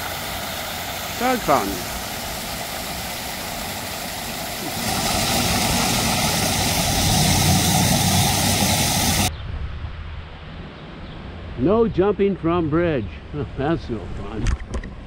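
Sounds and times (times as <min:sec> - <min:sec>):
fountain jets splashing: 0:00.0 - 0:09.3.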